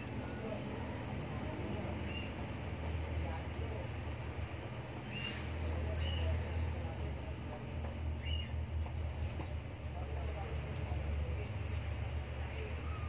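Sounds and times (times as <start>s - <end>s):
kittens squeaking: 12.7s - 13.0s.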